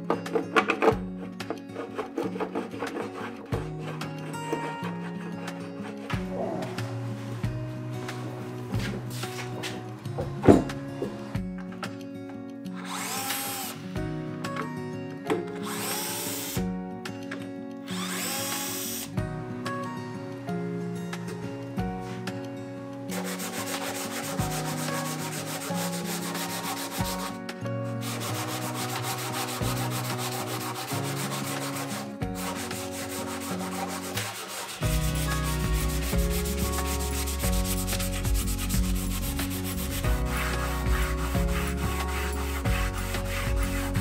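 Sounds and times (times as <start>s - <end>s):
sandpaper rubbing wood: 1.2s - 6.6s, 23.1s - 44.0s
background music with bass line: 3.5s - 11.7s, 23.4s - 44.0s.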